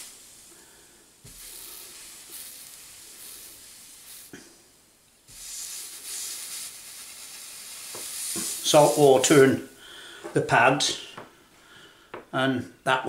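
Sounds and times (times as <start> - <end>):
electro-etching pad sizzling: 0.0 - 0.5, 1.2 - 4.4, 5.3 - 9.8.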